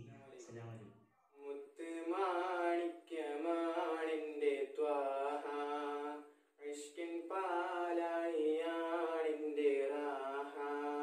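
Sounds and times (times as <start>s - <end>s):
boy singing unaccompanied: 1.4s - 11.0s.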